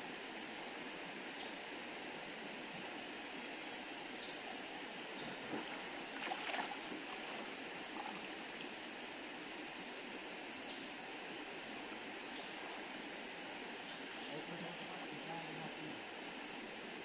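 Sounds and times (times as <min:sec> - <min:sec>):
splashing: 0:05.3 - 0:08.2
river water rushing: 0:05.3 - 0:08.7.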